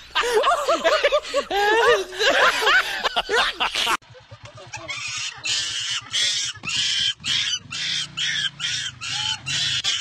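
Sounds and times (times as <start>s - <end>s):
loud chattering laughter-like sound: 0.1s - 10.0s
small motorcycle engine idling: 4.0s - 10.0s.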